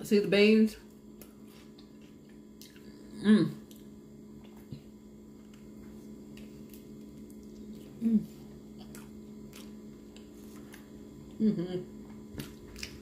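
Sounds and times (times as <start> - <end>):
low electrical hum: 0.0 - 13.0
person humming: 11.4 - 11.9.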